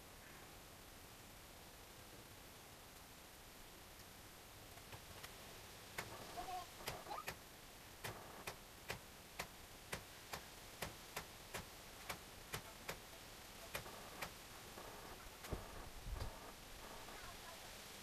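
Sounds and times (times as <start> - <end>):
faint clock ticking: 8.0 - 17.3.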